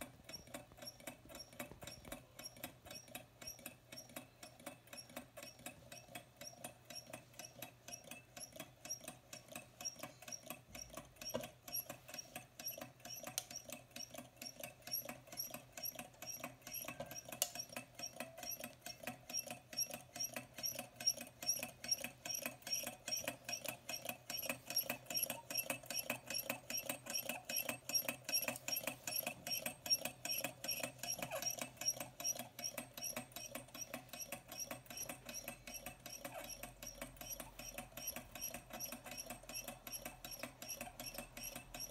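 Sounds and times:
engine flywheel clicking: 0.2s - 41.9s.

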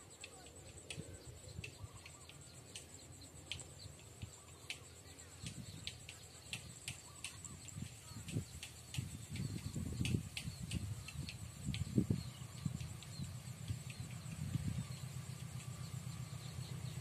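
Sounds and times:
insect trilling: 0.0s - 17.0s
faint low rumble: 7.4s - 17.0s.

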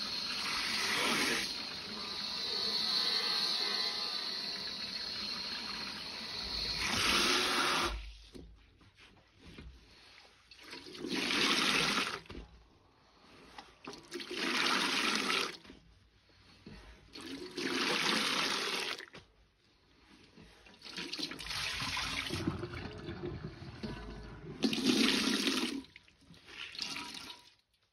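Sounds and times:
water running into metal bowl: 0.0s - 8.0s, 21.1s - 25.9s.

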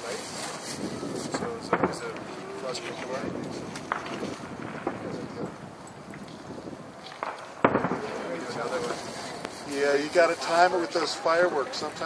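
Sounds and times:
distant fireworks popping: 0.0s - 12.0s
wind buffeting microphone: 0.0s - 12.0s.

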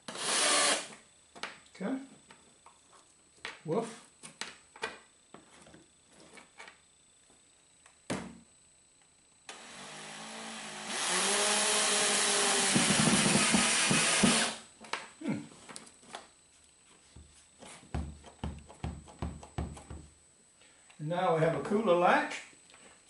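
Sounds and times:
power drill running: 0.0s - 1.0s, 9.5s - 14.6s.

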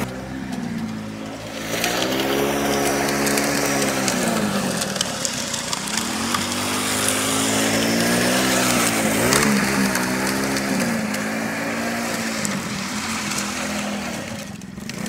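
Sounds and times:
gritty scraping crackling: 0.0s - 15.0s
small engine revving: 0.0s - 15.0s.

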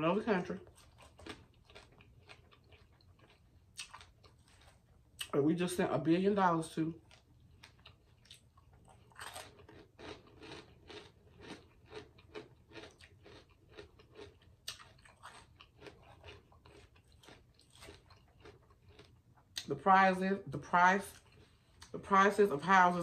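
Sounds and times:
person chewing food: 0.6s - 5.4s, 7.0s - 19.7s, 21.1s - 22.0s.

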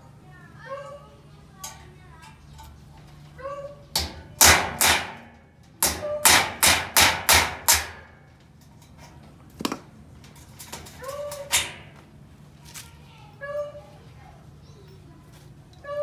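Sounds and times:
hammer blows on metal: 4.0s - 8.1s.

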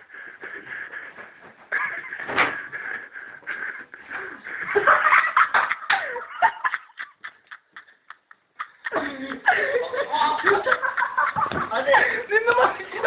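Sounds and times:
excited voices: 8.9s - 13.0s.

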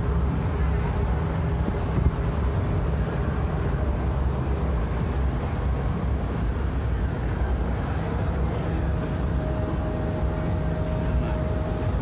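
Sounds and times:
low rumbling outdoor noise: 0.0s - 12.0s.

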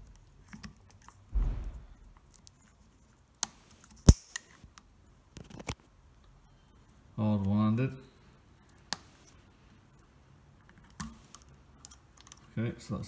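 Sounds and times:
low rustling thump of wires: 1.3s - 2.3s.

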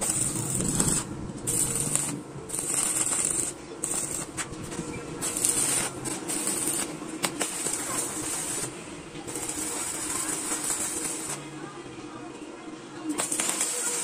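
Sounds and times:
welding arc crackling and hissing: 0.0s - 11.6s, 13.1s - 14.0s.

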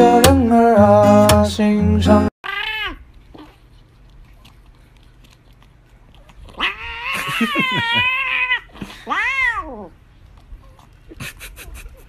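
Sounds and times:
cat yowling: 2.4s - 3.5s, 6.5s - 9.9s.

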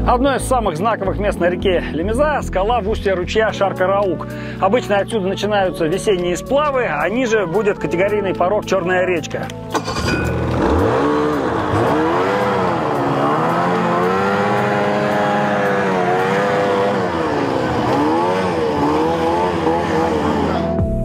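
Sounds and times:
snowmobile engine revving: 9.8s - 20.8s.

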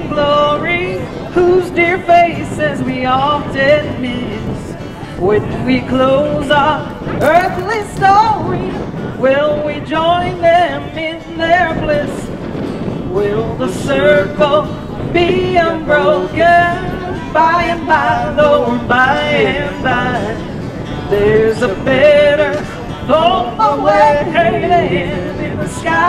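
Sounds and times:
woman singing: 0.0s - 12.4s, 13.0s - 26.0s
acoustic guitar: 0.0s - 26.0s
upright bass: 3.6s - 8.8s.

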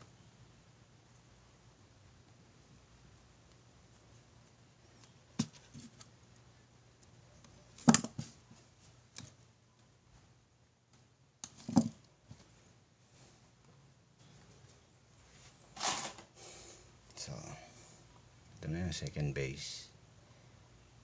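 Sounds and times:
faint hum: 0.0s - 21.0s
small objects set down on table: 15.8s - 16.3s.

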